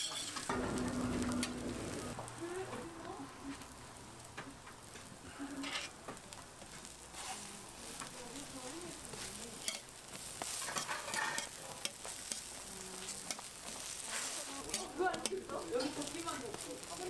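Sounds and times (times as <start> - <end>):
metal tongs scraping and clicking: 0.0 - 0.5, 9.6 - 9.9, 10.6 - 12.5, 14.7 - 16.1
burgers sizzling on griddle: 0.0 - 17.0.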